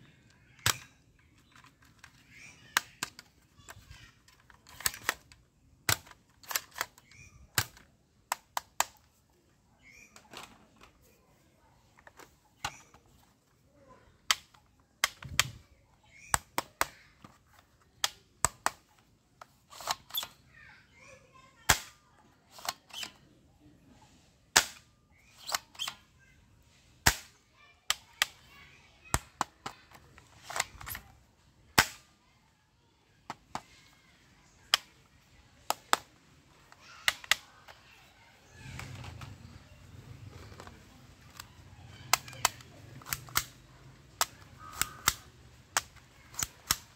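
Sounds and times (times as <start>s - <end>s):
plastic toy gun clicks: 0.3s - 9.2s, 14.1s - 20.4s, 21.7s - 23.2s, 24.5s - 26.0s, 27.0s - 32.1s, 34.6s - 37.8s, 40.2s - 46.9s.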